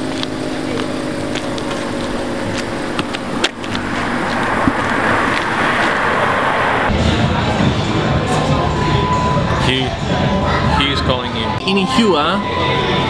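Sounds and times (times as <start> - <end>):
approaching vehicle rushing: 0.0 - 10.4
engine hum: 0.0 - 11.7.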